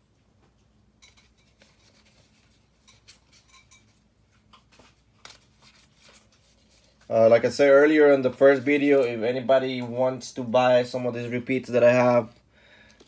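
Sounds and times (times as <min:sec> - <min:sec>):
trading cards clicking and rustling: 0:04.4 - 0:07.1, 0:08.0 - 0:10.0.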